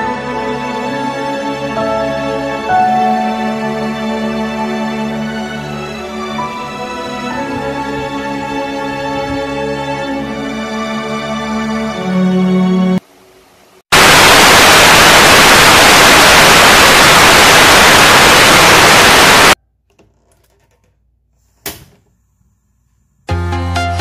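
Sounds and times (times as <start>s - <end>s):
television static hiss: 13.0s - 19.6s
brief burst of noise: 13.9s - 19.6s.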